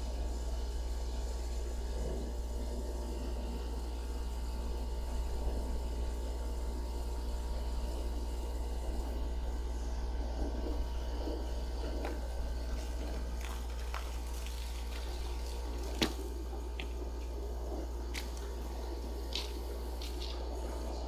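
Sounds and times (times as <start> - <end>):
steady low hum: 0.0 - 21.0
soapy water running and dripping: 11.3 - 21.0.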